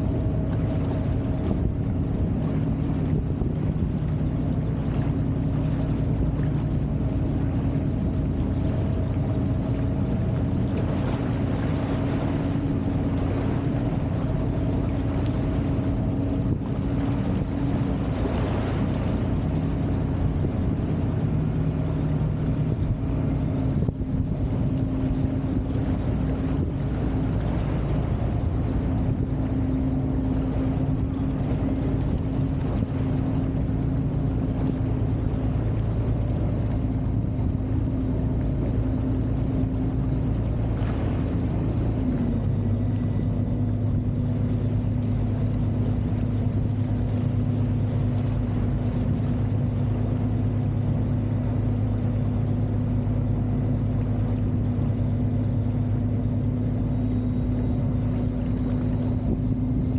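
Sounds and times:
motorboat engine running: 0.0 - 59.9
water rushing from wake: 0.0 - 59.9.

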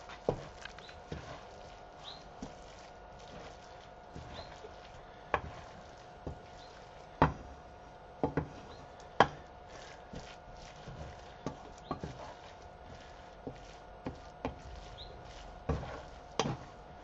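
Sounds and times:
faint steady hum: 0.0 - 17.0
wooden spatula knocking on a pan: 7.2 - 7.5, 8.2 - 8.6, 9.2 - 9.4, 11.4 - 12.2.

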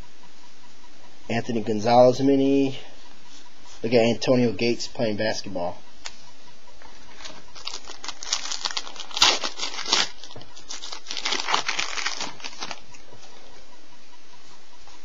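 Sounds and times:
wrapper tearing and crinkling: 7.2 - 12.9.

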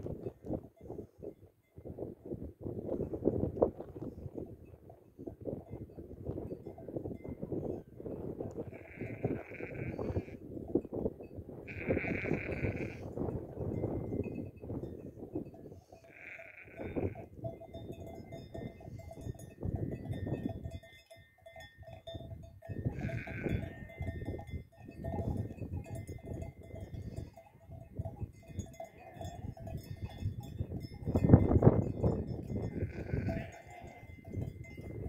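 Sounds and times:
wind buffeting microphone: 0.0 - 20.9, 22.0 - 35.0
sheep bleating: 8.7 - 10.4, 11.7 - 13.1, 16.1 - 17.3, 22.9 - 23.8, 32.7 - 34.1.

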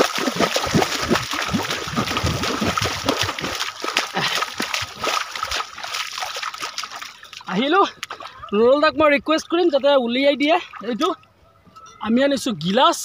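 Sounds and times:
feet splashing through water: 0.0 - 8.6.

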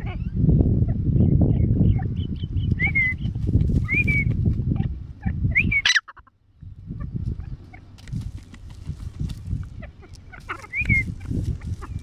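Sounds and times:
francolin chirping: 9.6 - 12.0.

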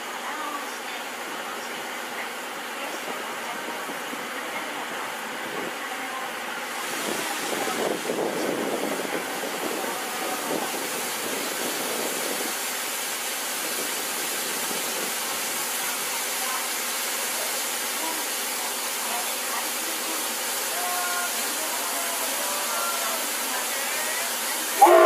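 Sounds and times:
steam locomotive hissing: 6.7 - 25.0.

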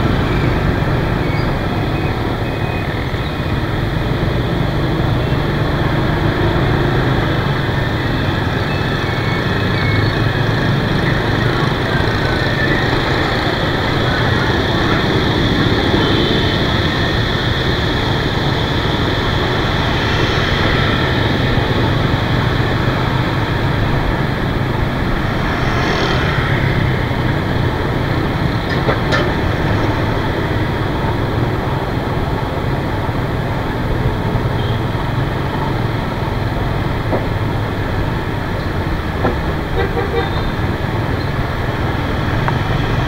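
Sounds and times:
road noise: 0.0 - 43.0.

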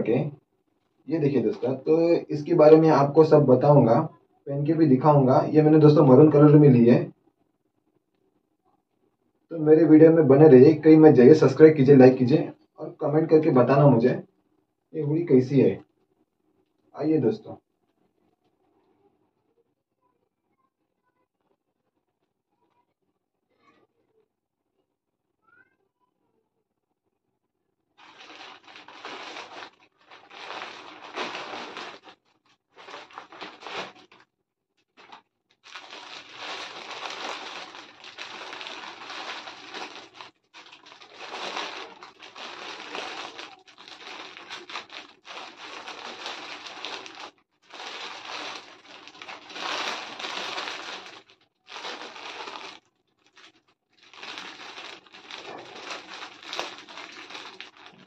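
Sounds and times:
paper mailer crumpling: 28.0 - 34.2, 35.0 - 58.0
plastic bag crackling: 28.0 - 34.3, 34.9 - 58.0.

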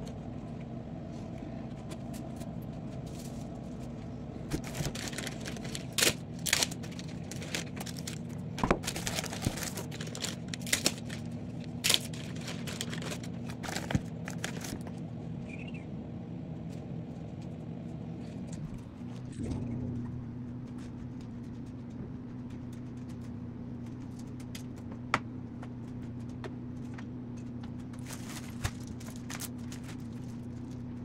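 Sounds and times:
steady low hum: 0.0 - 31.0
plastic bags crinkling: 4.5 - 14.8, 28.0 - 31.0.

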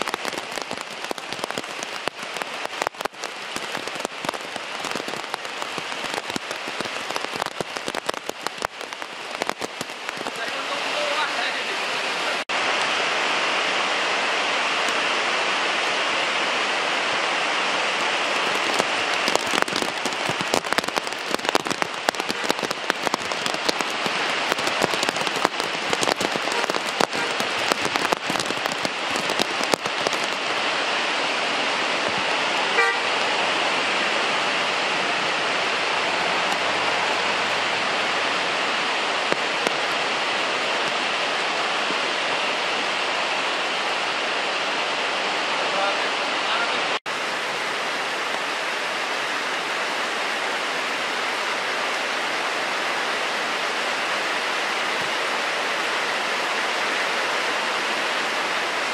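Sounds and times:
heavy rain pouring: 0.0 - 58.9
raindrops crackling close by: 0.0 - 58.9
vehicle horn toot: 32.7 - 33.1.

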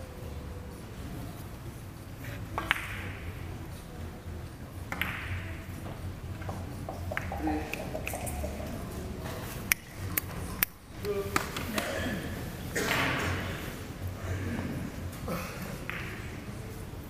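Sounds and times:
light knocks of balls: 2.5 - 3.3, 4.9 - 11.9
billiard balls clicking: 2.5 - 3.4, 4.9 - 8.8.

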